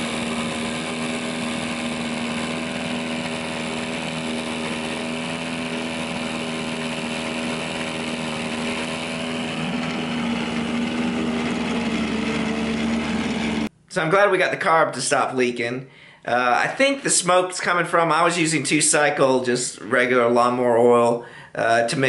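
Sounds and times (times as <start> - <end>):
outboard motor running: 0.0 - 13.7.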